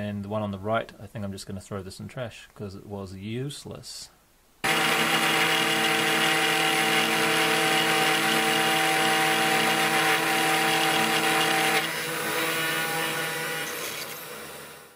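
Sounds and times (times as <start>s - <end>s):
end mill cutting aluminium: 4.6s - 14.7s.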